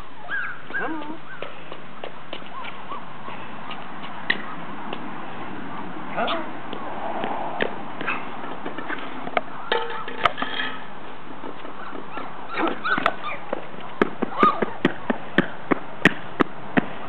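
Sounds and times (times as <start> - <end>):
puppies whimpering yelps: 0.2 - 1.4, 11.8 - 13.4, 14.3 - 14.7.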